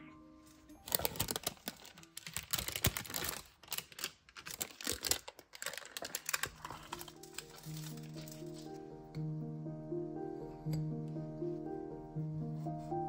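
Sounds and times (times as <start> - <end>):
baking paper crackling: 0.8 - 8.8.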